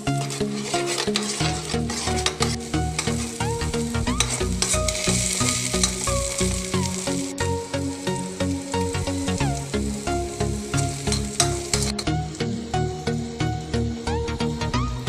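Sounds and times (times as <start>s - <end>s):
steel spoon scraping a pan: 0.0s - 7.3s, 10.7s - 12.2s
background music: 0.0s - 15.0s
vegetables sizzling in oil: 0.0s - 15.0s.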